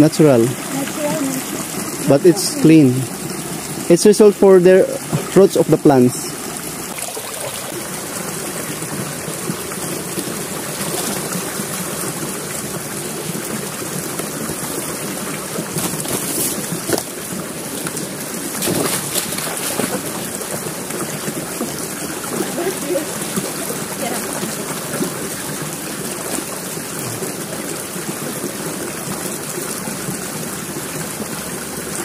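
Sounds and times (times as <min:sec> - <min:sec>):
stream rippling: 0:00.0 - 0:32.0
boots wading through water: 0:14.5 - 0:27.4.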